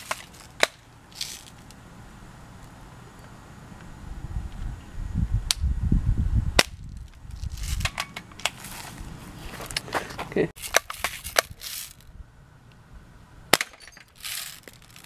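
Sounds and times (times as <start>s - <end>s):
clicks and rustles: 6.9s - 12.1s, 13.7s - 15.0s.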